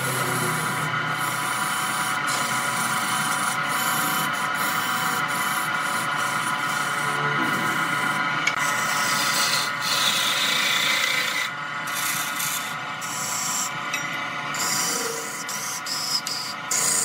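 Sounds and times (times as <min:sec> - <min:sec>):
tool scraping wood on lathe: 0:00.0 - 0:13.8, 0:14.5 - 0:17.0
lathe motor running: 0:00.0 - 0:17.0.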